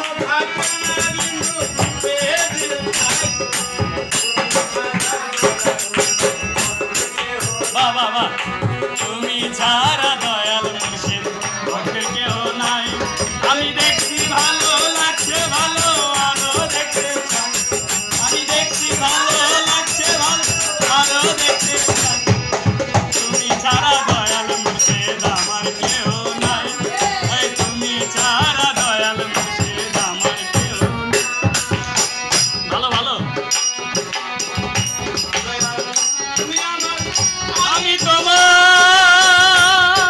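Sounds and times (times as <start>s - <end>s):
harmonium: 0.0s - 40.0s
jingling percussion: 0.0s - 40.0s
hand clapping: 33.6s - 37.6s.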